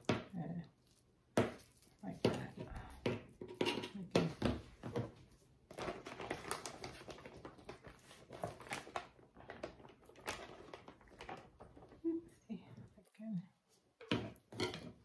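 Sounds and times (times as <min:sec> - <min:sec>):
plastic bag crinkling: 0:05.7 - 0:12.1.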